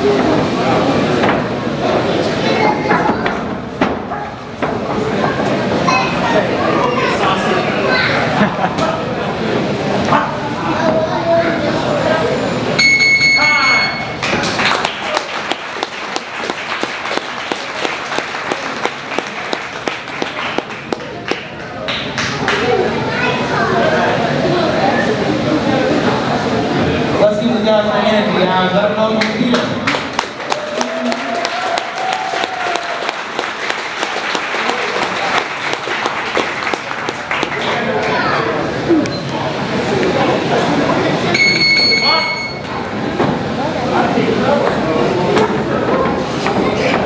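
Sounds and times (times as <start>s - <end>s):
spectators clapping: 14.2s - 22.8s, 29.2s - 38.6s.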